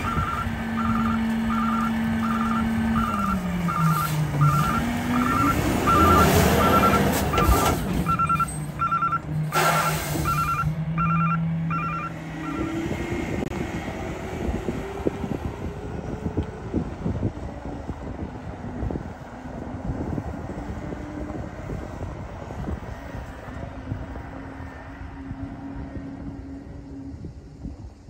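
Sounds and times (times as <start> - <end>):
truck warning alarm beeping: 0.0 - 13.0
engine and hydraulics humming: 0.0 - 28.0.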